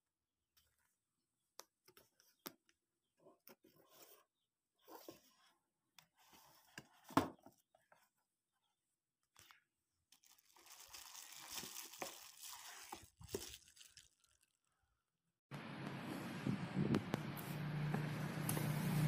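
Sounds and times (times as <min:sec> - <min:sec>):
bubble wrap crinkling: 0:10.2 - 0:14.7.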